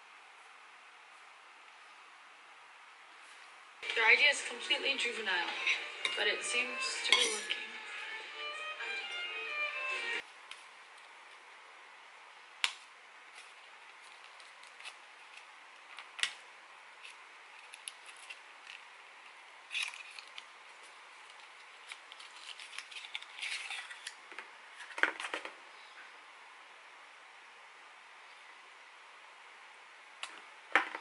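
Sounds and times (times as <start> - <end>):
cardboard crinkling: 13.3 - 16.3, 17.0 - 18.9, 19.7 - 25.4.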